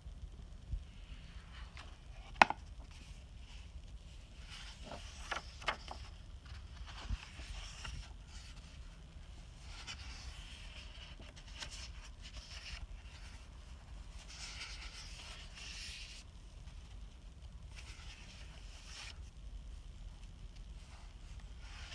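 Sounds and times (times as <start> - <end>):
paper flips and rustles: 1.0 - 17.0, 17.7 - 19.3, 20.5 - 21.9
sketchbook pages turning: 4.2 - 16.3, 17.7 - 19.3, 20.8 - 21.9.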